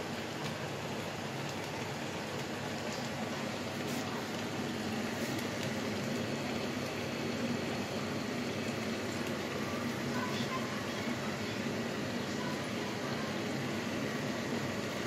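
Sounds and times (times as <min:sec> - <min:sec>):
pot of beans bubbling: 0:00.0 - 0:15.0.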